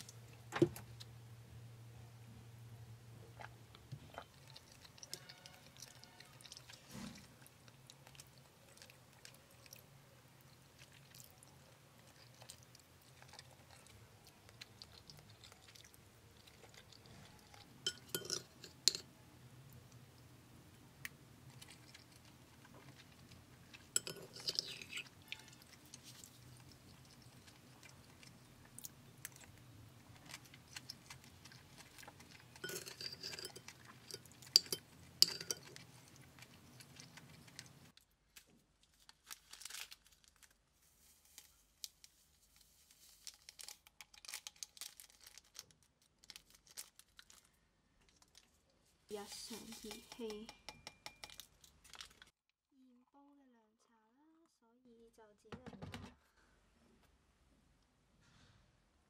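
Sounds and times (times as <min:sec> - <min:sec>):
soft chewing: 0:03.0 - 0:52.4
metal spoon clinking ceramic bowl: 0:17.8 - 0:19.1, 0:23.9 - 0:25.6, 0:32.6 - 0:35.8, 0:49.5 - 0:51.5.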